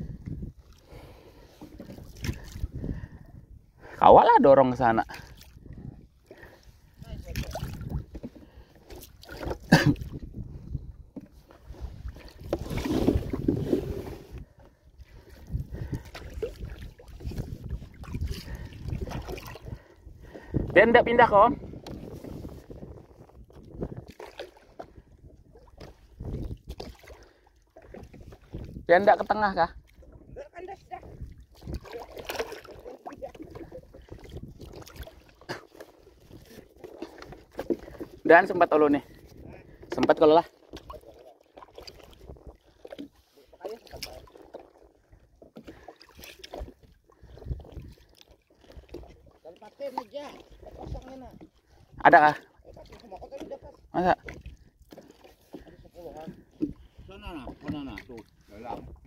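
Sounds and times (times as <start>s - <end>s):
wind rumble on microphone: 0.0s - 0.7s, 1.9s - 3.9s, 5.4s - 6.2s, 6.8s - 8.2s, 9.8s - 26.9s, 27.9s - 31.9s, 33.2s - 35.2s, 38.9s - 40.0s, 41.8s - 42.8s, 46.5s - 48.1s, 56.2s - 59.0s
water sloshing and splashing: 0.0s - 59.0s.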